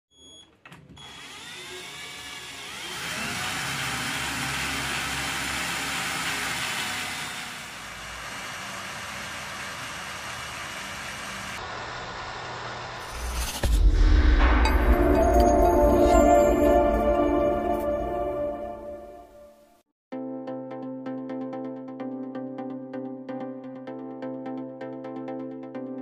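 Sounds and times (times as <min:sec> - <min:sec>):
small electric motor whirring: 0:01.0 - 0:13.6.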